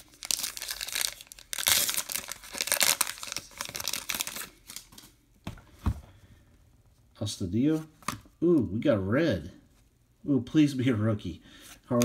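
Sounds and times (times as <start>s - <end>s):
wrapper crinkling and tearing: 0.0s - 5.1s.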